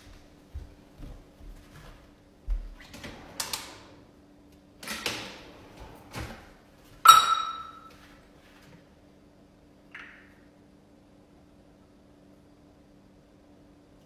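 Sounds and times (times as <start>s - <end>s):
metal cookware clanking: 7.1s - 8.0s.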